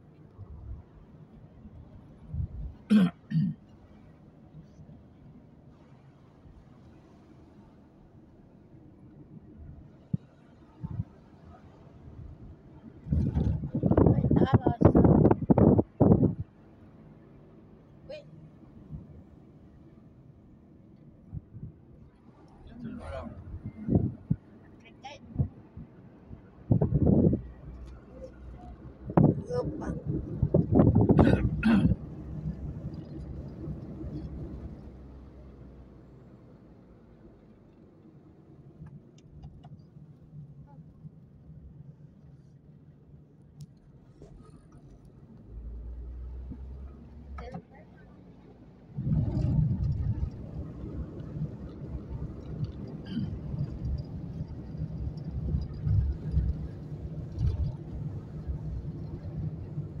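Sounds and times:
car road rumble: 0.0s - 60.0s
car and tyres rumbling on gravel: 48.9s - 60.0s.

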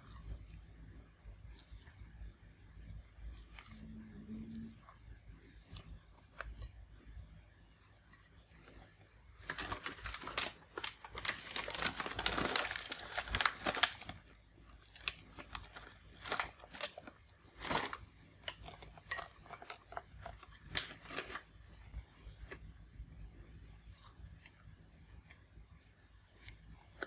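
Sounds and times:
packaging crackles and clicks: 9.4s - 21.5s
packaging crinkling: 9.4s - 21.5s.

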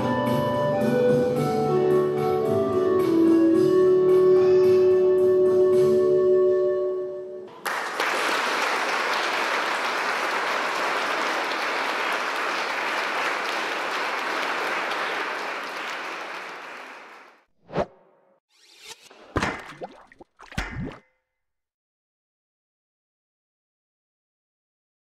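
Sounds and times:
congregation applauding: 7.5s - 17.4s.

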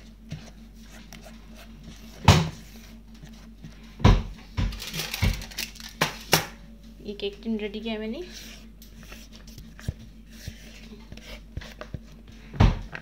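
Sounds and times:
spatula scraping plastic bowl: 8.2s - 12.3s.

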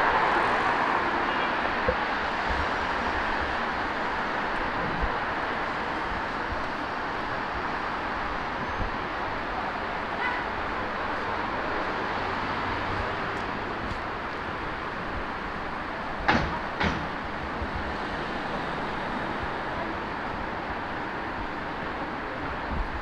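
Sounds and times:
city street background noise: 0.0s - 23.0s
sharp knocks: 16.3s - 17.2s.

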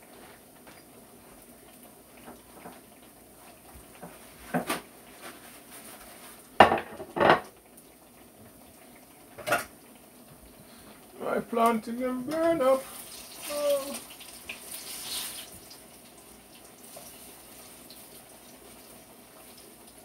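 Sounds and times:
kitchenware clinking and knocking: 6.6s - 7.5s.

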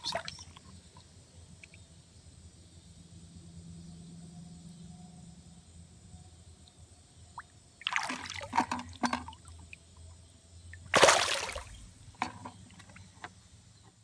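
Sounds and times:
stream water splashing: 7.4s - 9.8s, 10.8s - 13.0s.

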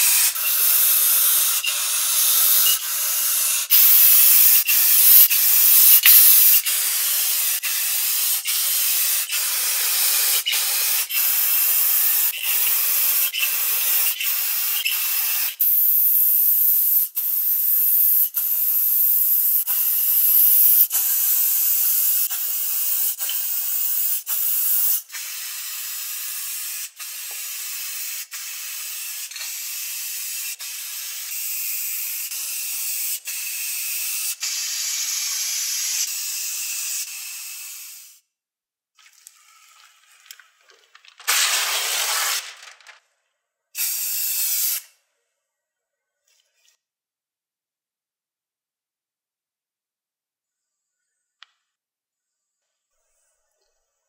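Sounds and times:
spray paint hissing: 0.0s - 38.3s, 41.2s - 42.6s, 43.8s - 45.0s.

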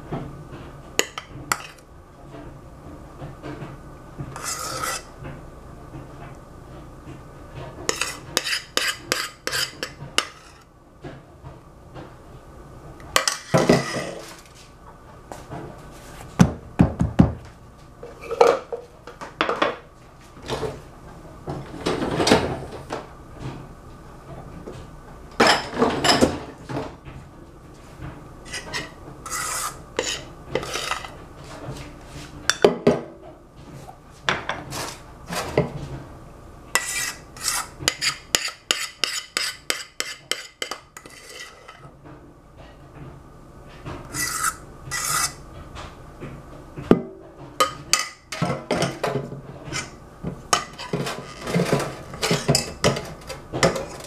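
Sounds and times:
spatula scraping metal bowl: 1.1s - 1.8s, 4.3s - 5.1s, 7.8s - 10.7s, 13.2s - 14.3s, 28.4s - 31.2s, 36.8s - 41.9s, 44.0s - 45.4s, 49.7s - 50.0s, 50.6s - 54.0s.

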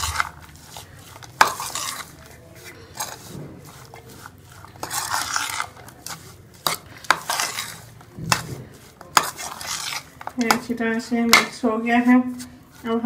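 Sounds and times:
spoon stirring food in bowl: 0.0s - 13.0s.

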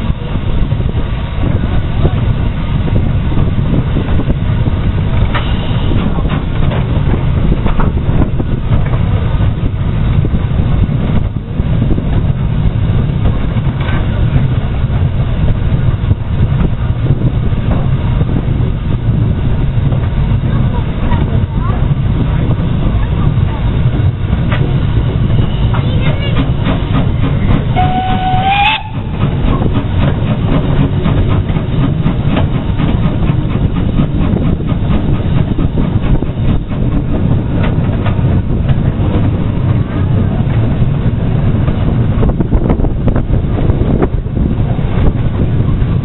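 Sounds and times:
train rumbling: 0.0s - 46.0s
wheels clattering on rails: 0.0s - 46.0s
steam whistle blast: 27.8s - 29.1s.

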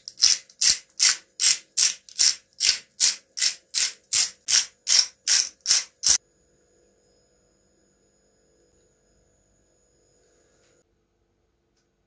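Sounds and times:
spice grinder grinding: 0.0s - 6.2s.

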